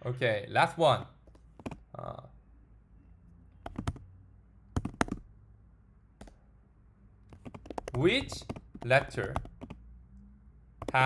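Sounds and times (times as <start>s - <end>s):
computer keyboard keys clicking: 1.3s - 1.8s, 3.6s - 4.0s, 4.8s - 5.2s, 7.3s - 9.8s, 10.8s - 11.0s.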